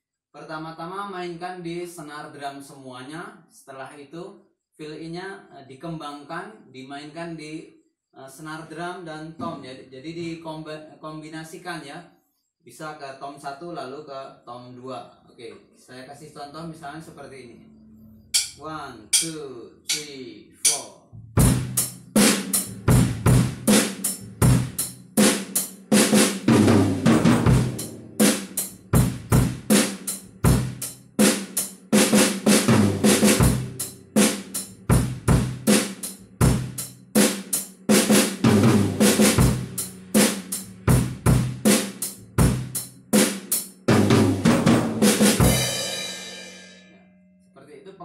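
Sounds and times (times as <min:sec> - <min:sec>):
drum fill on snare and toms: 0:18.4 - 0:18.6, 0:19.2 - 0:20.8, 0:21.4 - 0:46.3
drum kit playing rock beat: 0:18.4 - 0:20.8, 0:21.4 - 0:46.7.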